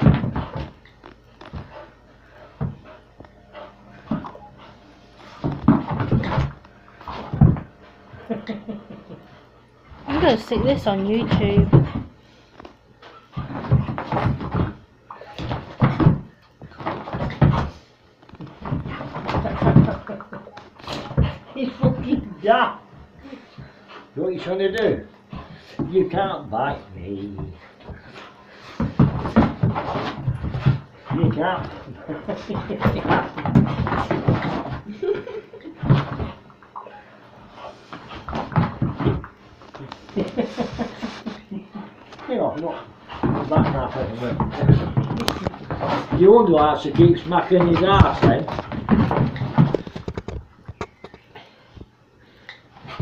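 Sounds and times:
knocks of dog scuffling: 0.0s - 8.5s, 9.9s - 12.2s, 13.1s - 22.3s, 22.9s - 36.6s, 37.4s - 51.8s
dog scuffling on carpet: 25.3s - 34.8s, 37.4s - 50.2s.

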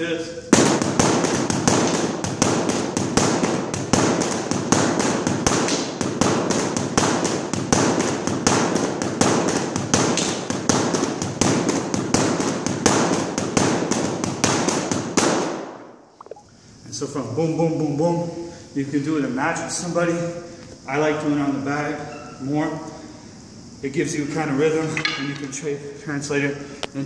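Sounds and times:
sticks striking punching bag: 0.5s - 15.8s.

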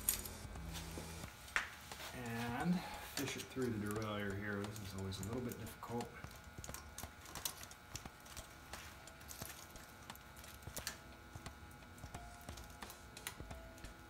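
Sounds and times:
bicycle chain clinking: 6.6s - 11.0s.

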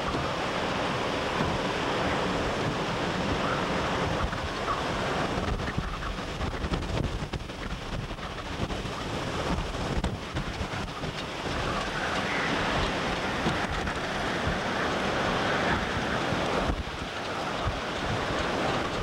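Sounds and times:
waves and spray on rough water: 0.0s - 19.0s
wind buffeting microphone: 0.0s - 19.0s.

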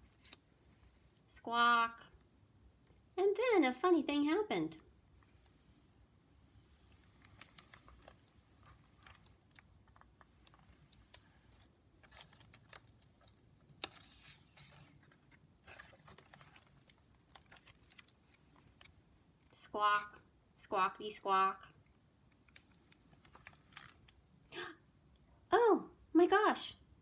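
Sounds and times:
book page rustling: 0.0s - 0.5s, 6.9s - 18.9s.

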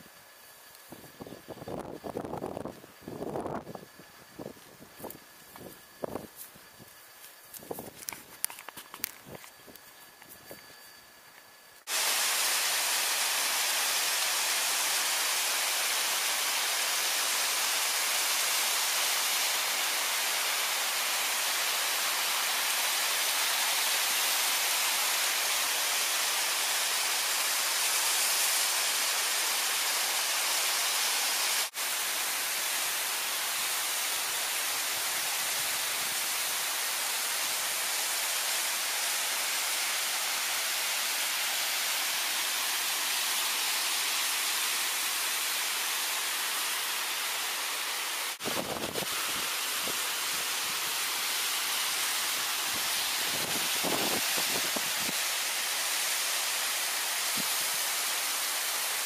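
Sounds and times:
waterfall rushing: 11.9s - 59.0s.

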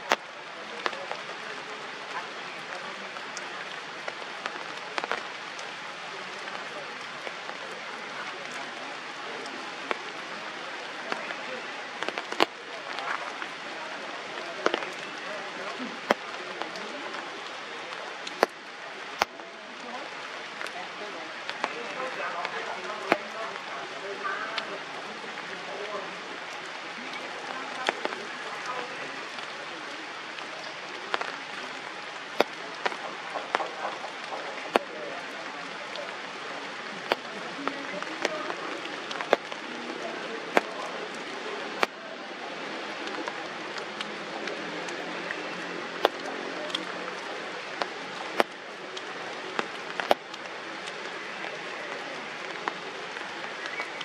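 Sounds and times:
rain falling on foliage: 0.0s - 54.0s
drips striking leaves: 21.4s - 42.0s, 42.8s - 54.0s.

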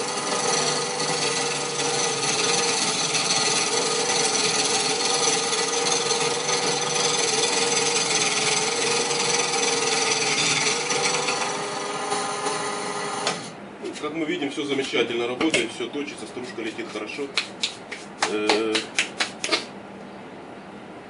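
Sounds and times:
chisel scraping spinning wood: 0.0s - 13.5s
electric motor humming: 0.0s - 13.6s.

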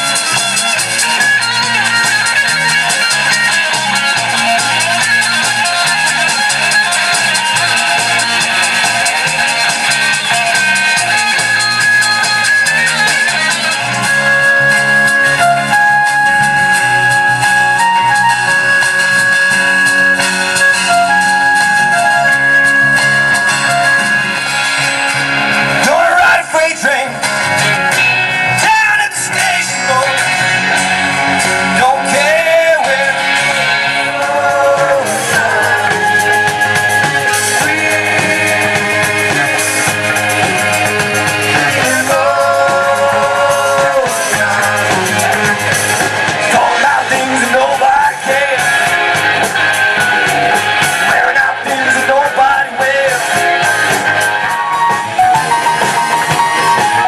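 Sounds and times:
rock band playing: 0.0s - 57.0s
lead vocal singing: 28.6s - 54.4s.

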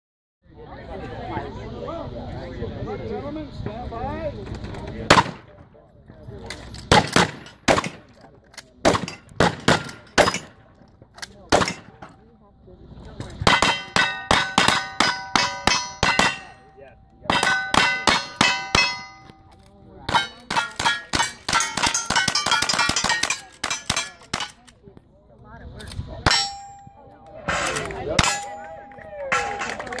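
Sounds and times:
rapid gunshots: 6.9s - 8.1s
steel plate targets ringing: 9.0s - 10.6s, 13.4s - 24.6s, 26.3s - 30.0s.

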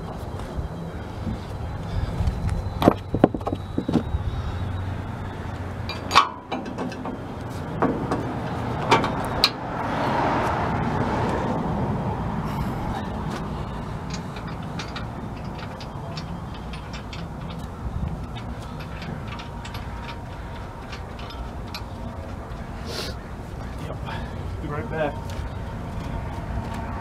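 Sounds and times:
metal knocks and clanks: 5.8s - 9.6s, 13.3s - 22.8s.

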